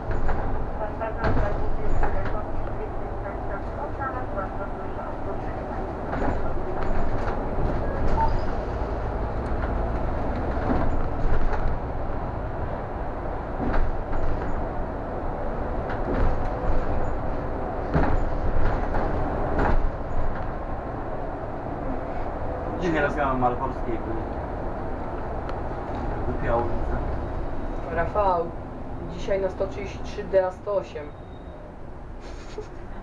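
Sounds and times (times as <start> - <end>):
bus engine low rumble: 0.0 - 33.0
rattles and knocks: 6.0 - 12.3, 13.5 - 14.6, 15.8 - 20.6.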